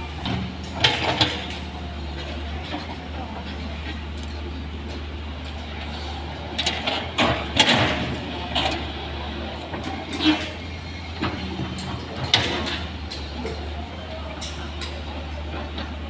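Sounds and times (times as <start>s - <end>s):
excavator engine running: 0.0s - 16.0s
excavator bucket clanking: 0.1s - 3.0s, 6.5s - 13.7s.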